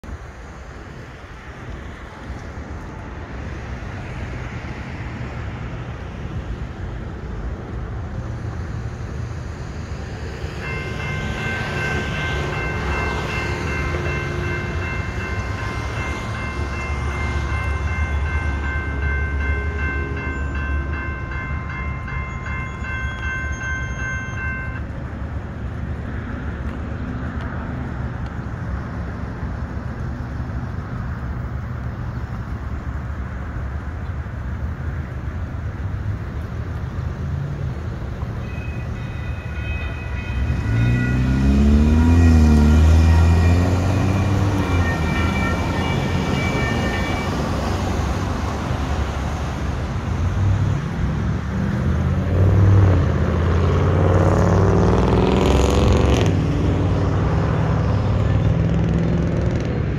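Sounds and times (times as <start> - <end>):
railroad crossing bell ringing: 10.2 - 25.8, 38.3 - 51.1.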